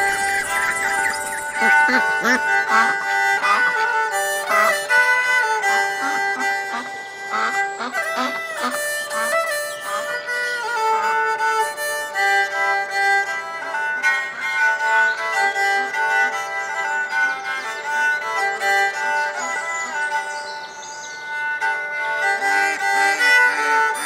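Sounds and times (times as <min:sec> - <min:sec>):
ducks quacking: 0:00.0 - 0:11.1, 0:22.0 - 0:24.0.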